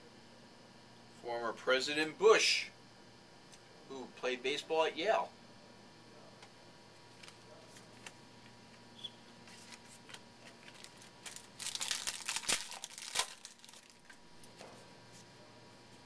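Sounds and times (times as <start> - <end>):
wrapper tearing and crinkling: 10.5 - 14.2.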